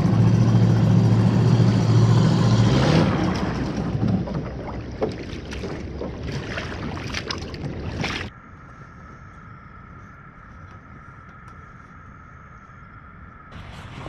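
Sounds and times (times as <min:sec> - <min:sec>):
loud crackling rushing noise: 0:13.5 - 0:14.0.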